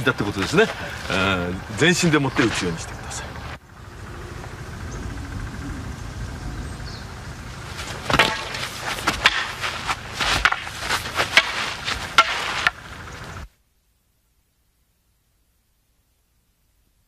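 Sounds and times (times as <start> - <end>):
wooden staff knocks and thuds: 7.8 - 12.8.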